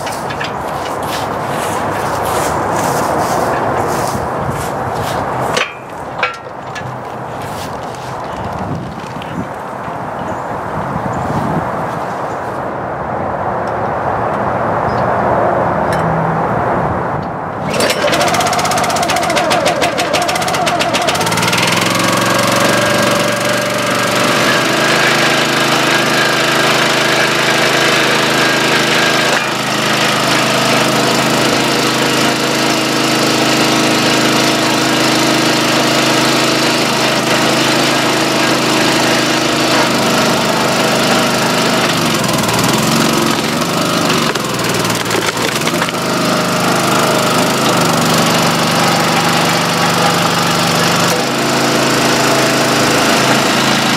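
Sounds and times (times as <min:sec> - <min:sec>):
small gas engine running: 0:17.6 - 0:53.9.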